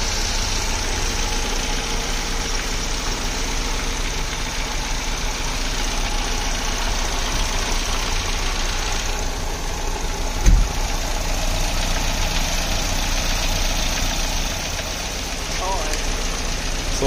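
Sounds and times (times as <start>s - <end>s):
car engine idling: 0.0s - 17.0s
short thump: 10.4s - 10.9s.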